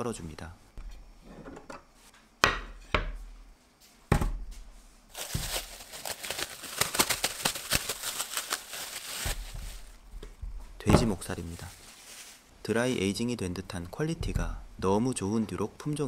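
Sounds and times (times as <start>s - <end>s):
wood knocking on wood: 2.4s - 3.2s, 14.2s - 14.6s
cling film crackling as peeled: 5.1s - 10.0s.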